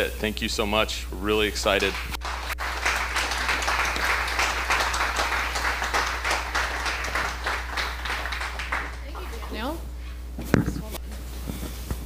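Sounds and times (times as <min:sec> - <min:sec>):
audience applauding: 0:01.6 - 0:09.7.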